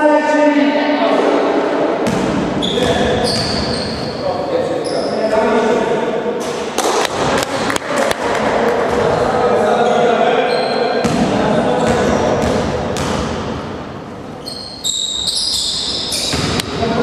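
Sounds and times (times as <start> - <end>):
sneaker squeaks: 2.0 - 5.4, 9.8 - 13.1, 14.3 - 16.8.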